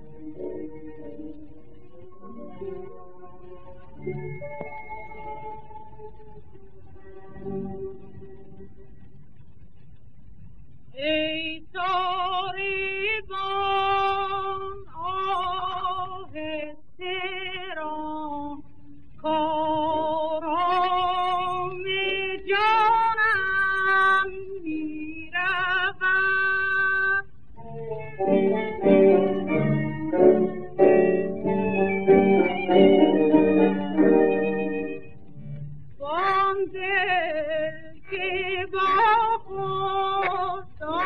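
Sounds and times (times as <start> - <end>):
woman singing with wide vibrato: 11.0 - 18.6, 19.2 - 27.3, 36.0 - 41.0
held accompanying note: 27.6 - 35.9.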